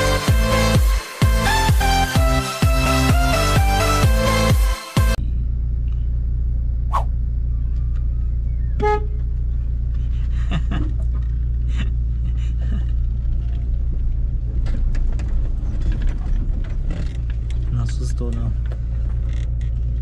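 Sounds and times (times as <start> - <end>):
car engine idling: 5.2 - 20.0.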